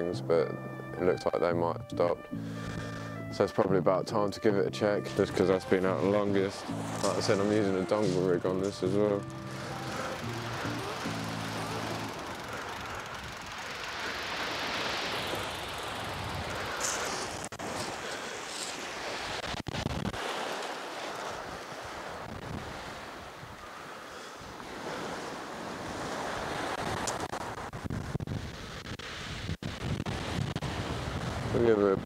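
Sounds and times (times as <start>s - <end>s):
waves on shingle beach: 5.3s - 27.8s, 30.1s - 31.6s
wind noise on microphone: 14.2s - 20.5s, 21.3s - 23.6s, 24.6s - 32.0s.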